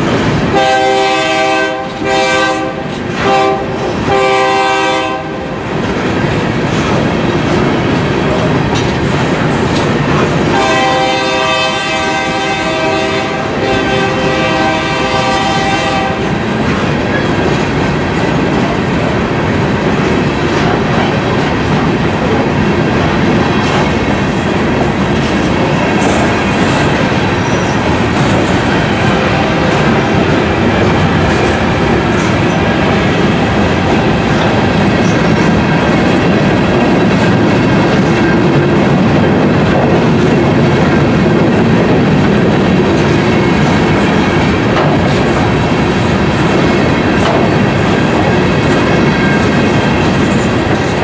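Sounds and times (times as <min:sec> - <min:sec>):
train wheels clacking on rails: 0:00.0 - 0:51.0
locomotive horn blasts: 0:00.5 - 0:05.6, 0:10.5 - 0:16.4.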